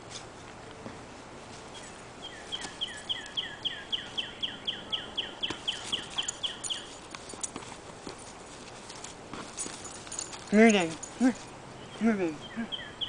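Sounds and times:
songbird repeated downslurred chirps: 1.8s - 7.0s, 11.7s - 13.0s.

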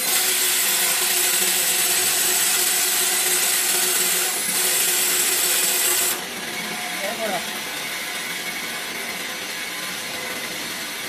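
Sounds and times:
band saw cutting metal: 0.0s - 11.0s.

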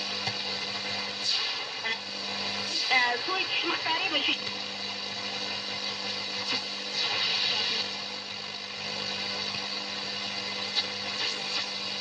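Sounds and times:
steady hum: 0.0s - 12.0s
radio static hiss: 0.9s - 12.0s
radio tuning swishes: 6.4s - 7.9s.

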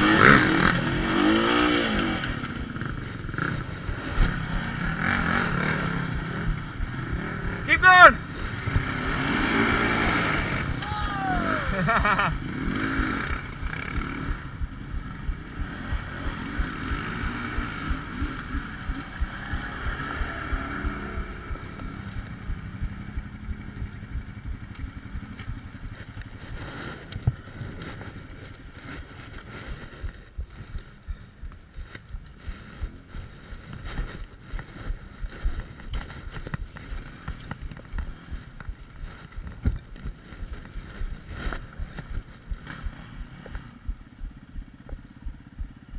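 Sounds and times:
quad engine revving: 0.0s - 30.6s
atv engines rumbling: 0.0s - 45.9s
knocks and jolts over ruts: 0.0s - 45.9s.

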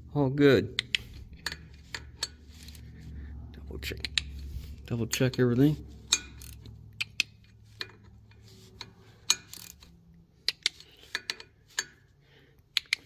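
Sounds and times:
metallic clicks of hand driver: 0.7s - 2.4s, 3.8s - 4.4s, 6.1s - 8.2s, 8.8s - 12.0s, 12.6s - 13.0s.

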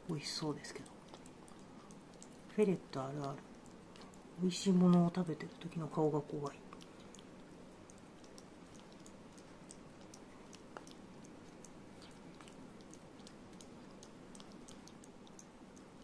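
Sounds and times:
ferret lapping milk: 0.0s - 16.0s.

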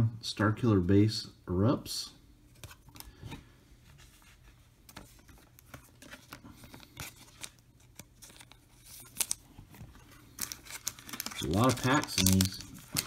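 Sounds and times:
card packs ticking and rustling: 4.9s - 13.0s.

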